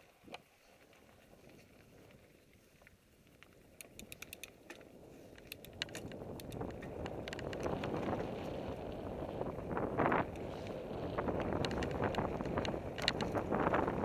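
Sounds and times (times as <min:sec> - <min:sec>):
bike tyres on dirt trail: 0:00.0 - 0:14.0
bike clicking and rattling: 0:00.3 - 0:14.0
wind on microphone: 0:04.8 - 0:14.0.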